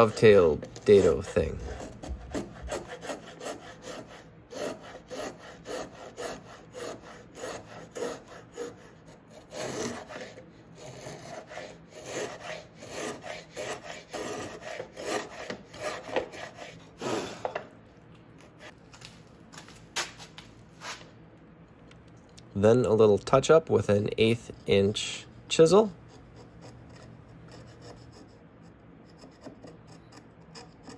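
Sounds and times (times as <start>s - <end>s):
router plane scraping wood: 0.0s - 17.6s.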